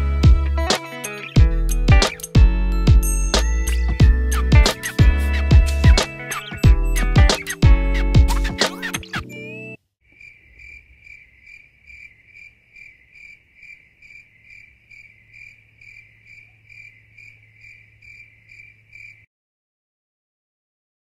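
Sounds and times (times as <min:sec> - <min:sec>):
insect-like chirping: 0:10.1 - 0:19.3.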